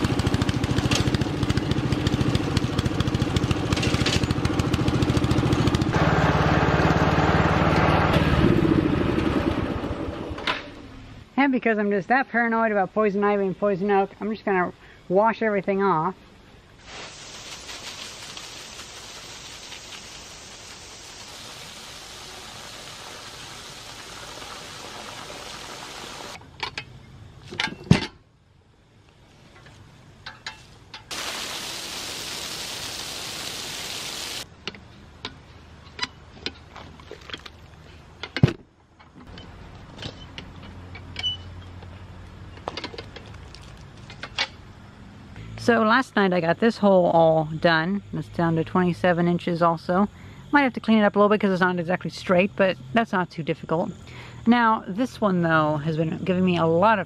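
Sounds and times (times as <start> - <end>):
hose water spraying on dirt: 16.8 - 26.4, 31.1 - 34.5.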